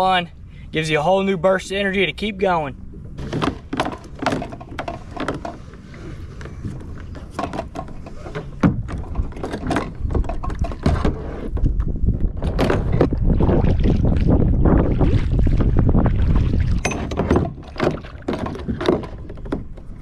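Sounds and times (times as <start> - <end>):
wind buffeting microphone: 8.5 - 20.0.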